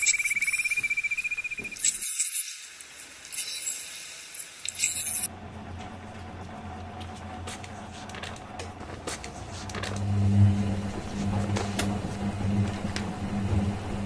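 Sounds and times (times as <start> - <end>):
washing machine spin hum: 5.3 - 14.0.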